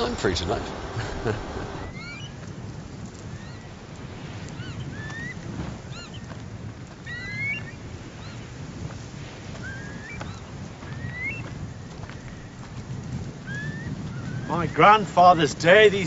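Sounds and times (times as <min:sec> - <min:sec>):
steady low rumble: 0:00.0 - 0:07.1
birds chirping and whistling: 0:01.0 - 0:06.4, 0:07.0 - 0:08.5, 0:09.5 - 0:12.8, 0:13.4 - 0:15.8.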